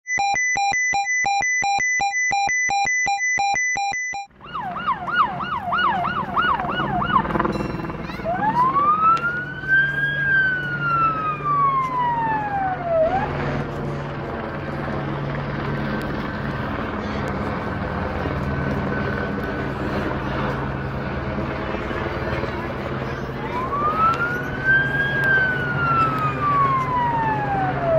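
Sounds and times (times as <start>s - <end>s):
beeping electronic jingle: 0.1s - 4.3s
helicopter siren yelp and wail: 0.1s - 27.9s
helicopter rotor drone: 4.1s - 27.9s.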